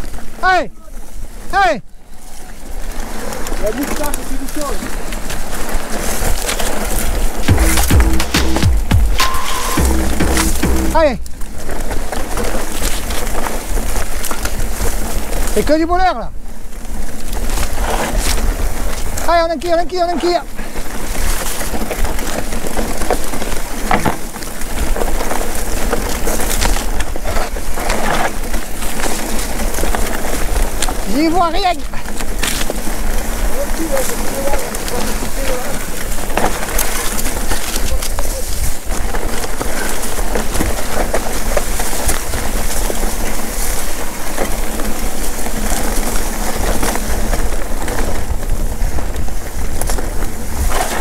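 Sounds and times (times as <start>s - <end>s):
tyres crunching over stones: 2.2s - 15.8s, 16.4s - 51.0s
bike rattling and knocking: 2.8s - 51.0s
wind rumbling on microphone: 16.3s - 51.0s.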